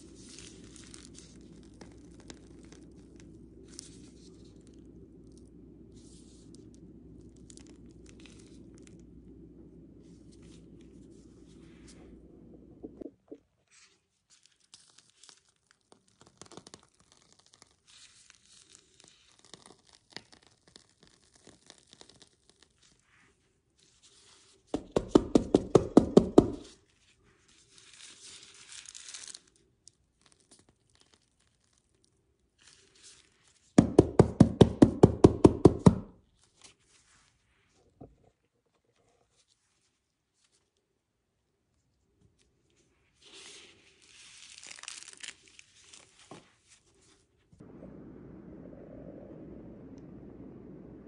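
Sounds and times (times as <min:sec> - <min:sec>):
plastic crinkling: 0:00.0 - 0:09.1, 0:13.8 - 0:23.1, 0:27.5 - 0:33.8, 0:43.2 - 0:47.2.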